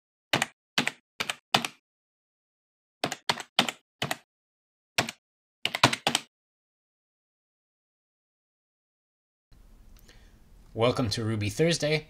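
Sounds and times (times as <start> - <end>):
keyboard keystrokes: 3.0 - 4.2, 5.0 - 6.3.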